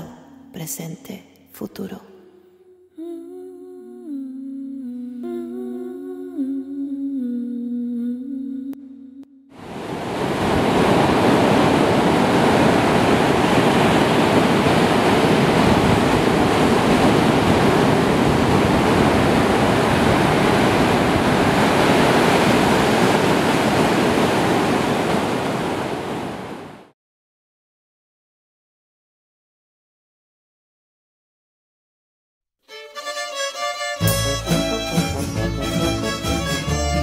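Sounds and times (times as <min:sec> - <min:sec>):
ocean surf rushing: 0:09.6 - 0:26.9, 0:34.0 - 0:37.0
wind buffeting microphone: 0:09.7 - 0:26.8.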